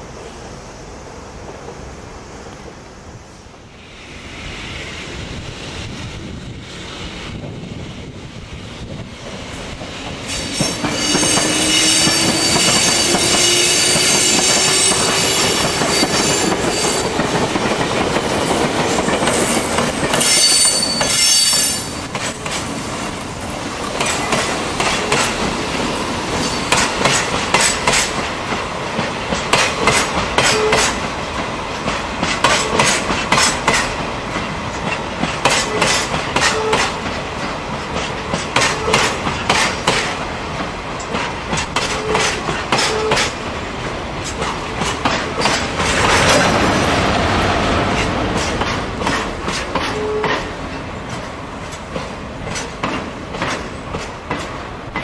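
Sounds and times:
electric locomotive passing: 0.0 - 55.0
high ringing squeal: 10.3 - 17.2, 20.2 - 22.1, 26.4 - 26.8.

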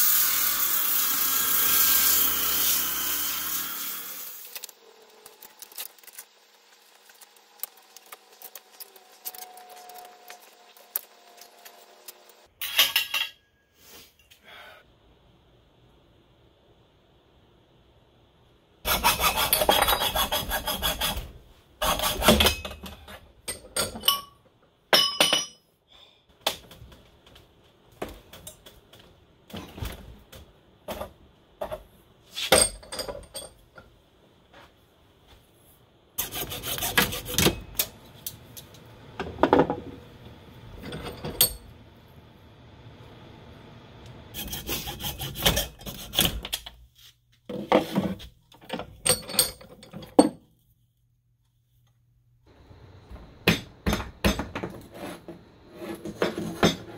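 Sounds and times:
hacksaw cutting: 18.9 - 22.6, 36.2 - 37.6, 44.4 - 46.4.

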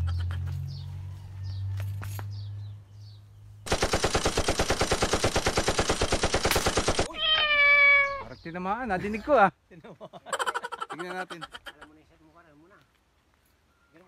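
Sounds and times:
bird chirps: 0.0 - 3.7, 13.4 - 14.0
rapid machine-gun fire: 3.7 - 7.1.

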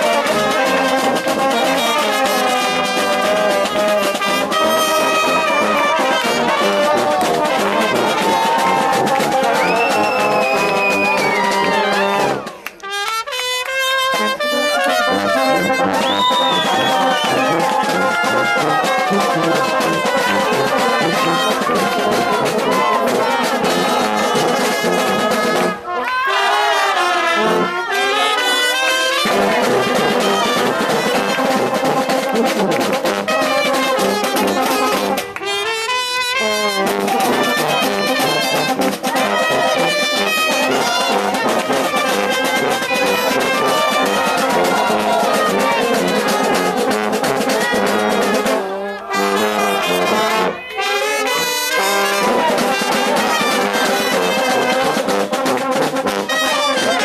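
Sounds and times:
trombones: 0.0 - 57.0
trumpets: 0.0 - 57.0
tuba: 0.0 - 57.0.

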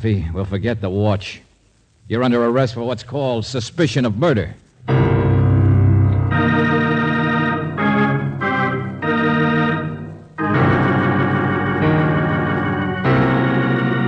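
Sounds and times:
organ chords: 4.8 - 14.0.

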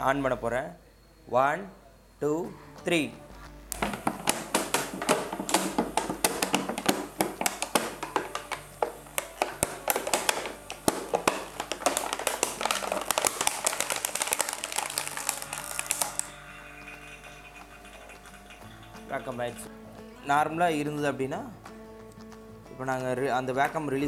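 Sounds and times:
plastic can crackling and popping: 3.7 - 16.4.

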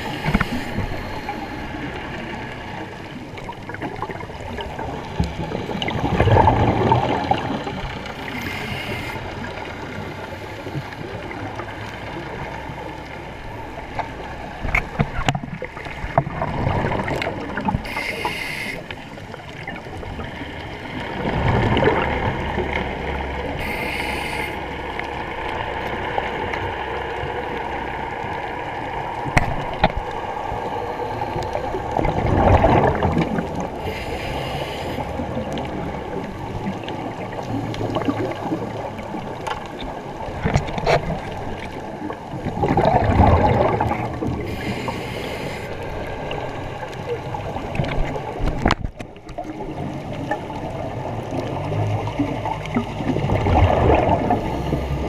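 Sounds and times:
underwater rush: 0.0 - 55.0
regulator inhalation hiss: 8.3 - 9.2, 17.8 - 18.9, 23.6 - 24.6, 33.8 - 35.1, 44.5 - 45.7.

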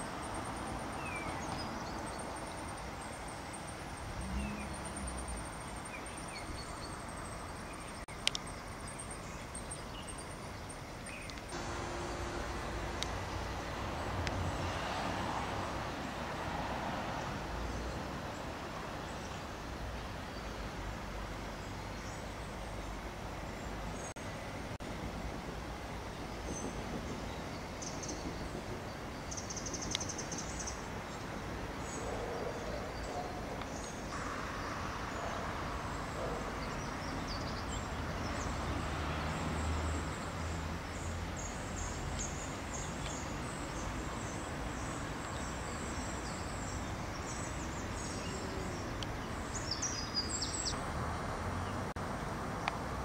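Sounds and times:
small birds chirping: 0.0 - 14.7, 39.4 - 50.8
low rumble of traffic: 0.0 - 53.0.

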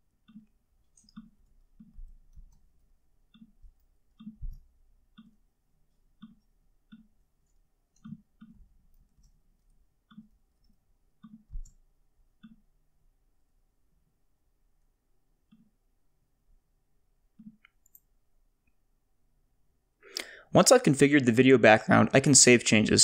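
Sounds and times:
computer mouse clicking: 0.1 - 12.8, 15.4 - 15.8, 17.3 - 18.1.

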